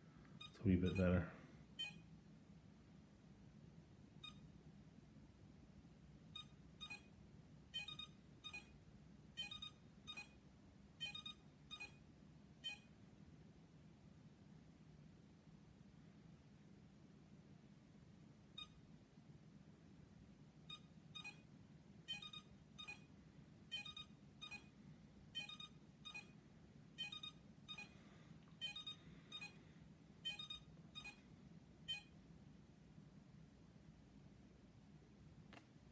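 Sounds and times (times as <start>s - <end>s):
short high electronic beeps: 28.6s - 29.6s, 30.3s - 31.2s.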